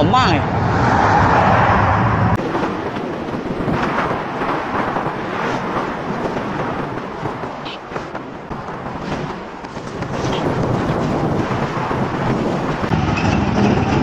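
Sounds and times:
road traffic: 0:00.0 - 0:14.0
wind noise: 0:00.0 - 0:14.0
car passing close by: 0:00.4 - 0:02.4.

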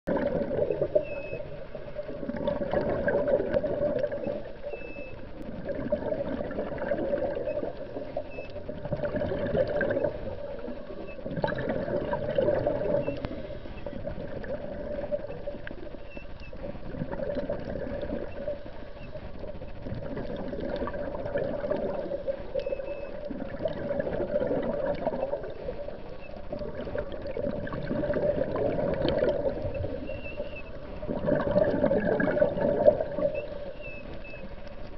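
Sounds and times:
muffled underwater water noise: 0:00.0 - 0:34.9.

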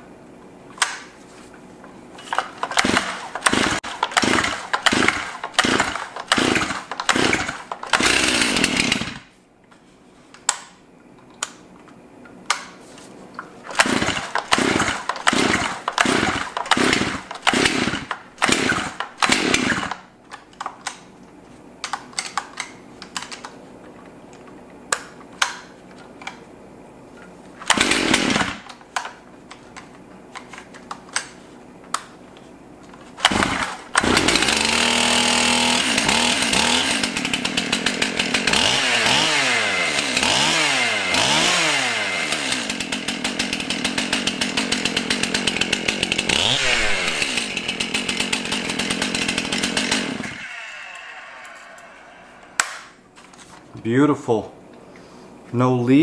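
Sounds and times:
chainsaw idling and revving: 0:02.3 - 0:09.3, 0:13.7 - 0:20.1, 0:27.6 - 0:28.7, 0:33.2 - 0:53.0.

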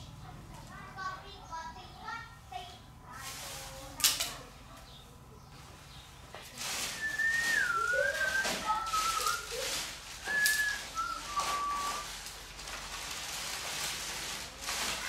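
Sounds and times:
rustling noise: 0:03.1 - 0:04.4, 0:05.6 - 0:15.0
person whistling: 0:07.0 - 0:09.6, 0:10.2 - 0:12.0.

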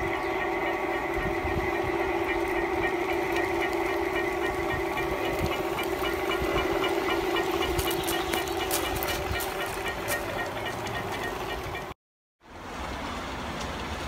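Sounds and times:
model train humming: 0:00.0 - 0:12.0.

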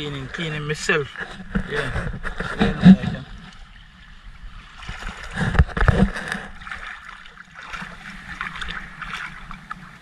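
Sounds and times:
water lapping against boat hull: 0:00.0 - 0:10.0
splashing and knocking: 0:01.1 - 0:03.6, 0:04.7 - 0:09.8.

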